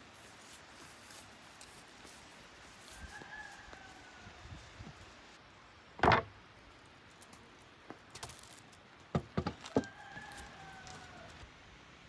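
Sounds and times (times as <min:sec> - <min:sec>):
knocks and clatters of objects: 0:06.0 - 0:06.3, 0:08.1 - 0:10.5.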